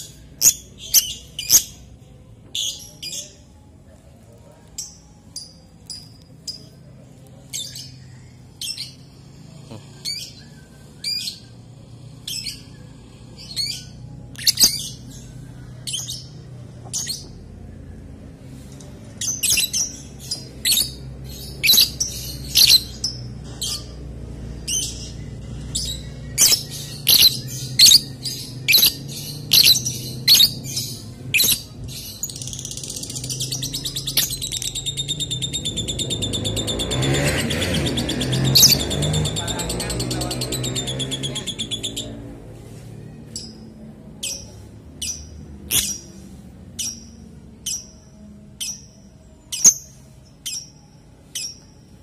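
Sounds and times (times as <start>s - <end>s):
lovebird chirping: 0.0s - 1.9s, 12.2s - 17.4s, 19.2s - 24.0s, 24.6s - 39.6s, 43.3s - 52.0s.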